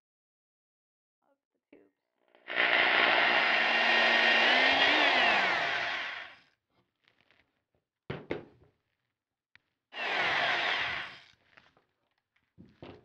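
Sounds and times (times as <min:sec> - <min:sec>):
electric drill whine: 0:02.4 - 0:06.4, 0:10.0 - 0:11.3.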